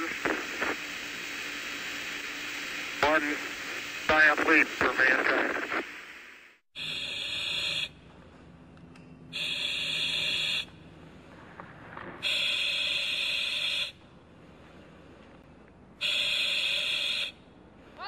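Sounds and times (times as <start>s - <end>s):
hissy buzzing sound effect: 0.0s - 7.9s, 9.4s - 10.7s, 12.2s - 14.0s.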